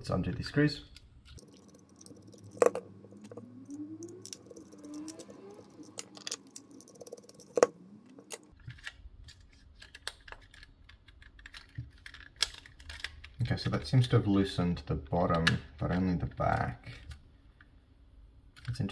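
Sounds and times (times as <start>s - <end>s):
small screwdriver turning screws: 1.4s - 7.7s.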